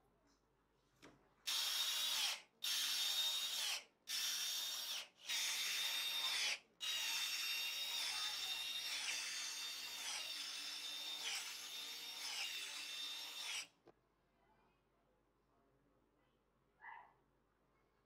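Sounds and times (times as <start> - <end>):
cordless drill whining: 1.5 - 13.7.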